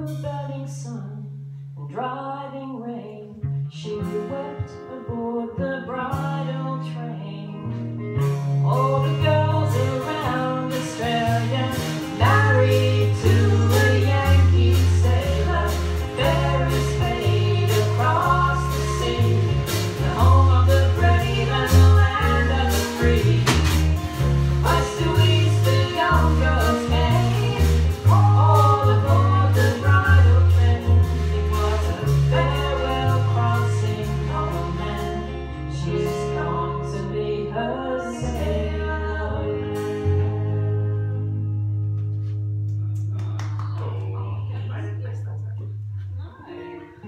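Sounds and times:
drums: 0.0 - 1.8, 7.6 - 37.4, 38.1 - 43.8
electric and acoustic guitars: 0.0 - 47.0
deep bass notes: 5.5 - 47.0
voices singing together: 8.8 - 41.0.

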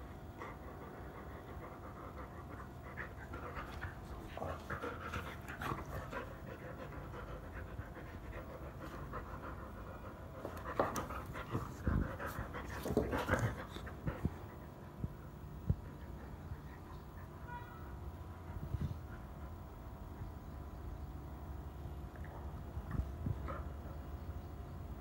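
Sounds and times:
dog panting: 0.4 - 17.4.

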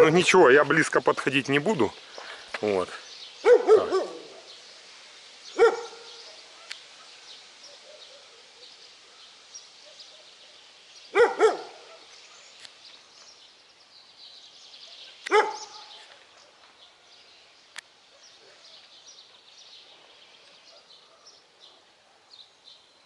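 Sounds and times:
dog barking: 3.4 - 4.6, 5.6 - 10.4, 11.1 - 12.5, 15.3 - 16.1, 20.6 - 22.0.

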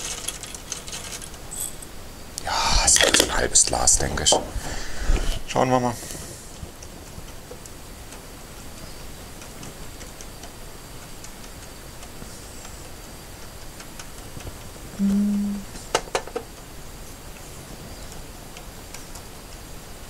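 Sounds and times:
short low hum: 15.0 - 15.8.

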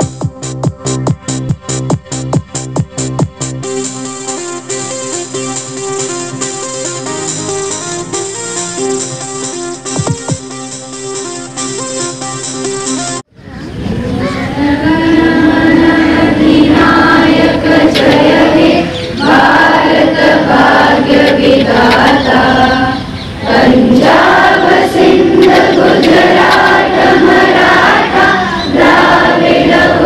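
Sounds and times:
group singing in unison: 14.6 - 30.0.

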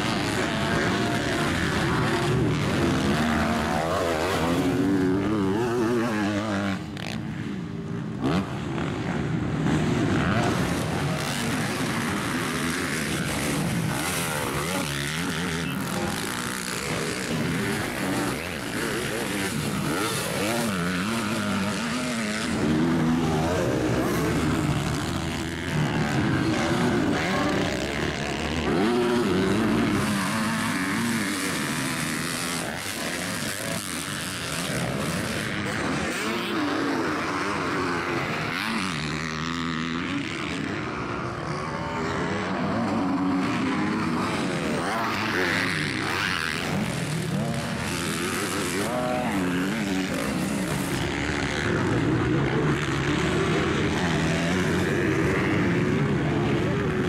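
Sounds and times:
motocross bike engines revving: 0.0 - 57.0.

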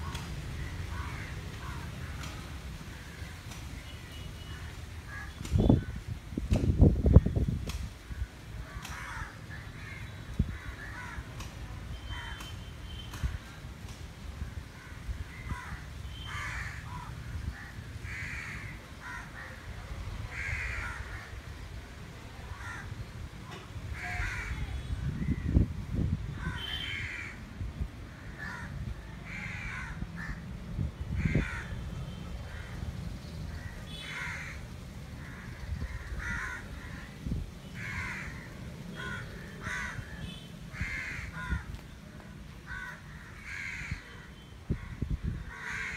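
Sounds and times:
crows cawing: 0.6 - 2.3, 8.2 - 11.4, 14.8 - 19.6, 20.3 - 21.4, 22.5 - 22.9, 23.9 - 24.6, 26.4 - 27.4, 28.1 - 30.4, 31.2 - 31.8, 33.5 - 37.1, 37.8 - 41.8, 42.6 - 44.2, 44.8 - 45.9.

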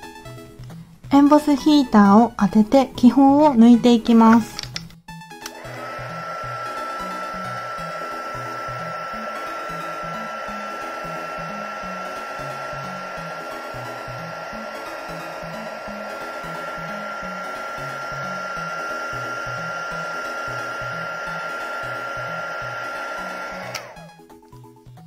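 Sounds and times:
soft background music: 0.0 - 25.0
heat gun blowing with whine: 5.4 - 24.2.

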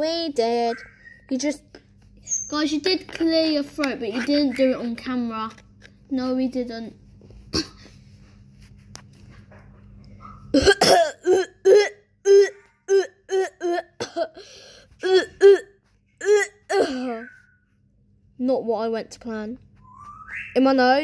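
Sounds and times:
child pretend coughing: 7.5 - 7.9, 10.5 - 17.2.

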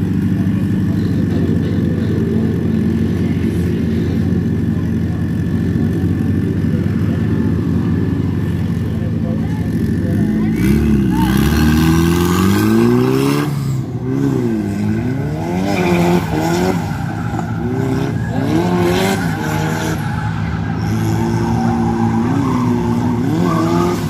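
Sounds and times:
tyres skidding and squealing: 0.0 - 24.0
car engine revving hard: 10.4 - 24.0.

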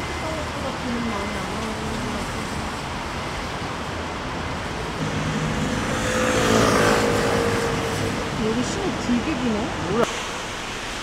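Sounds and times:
traffic on wet road: 0.0 - 11.0
vehicle passing close: 4.9 - 10.1.

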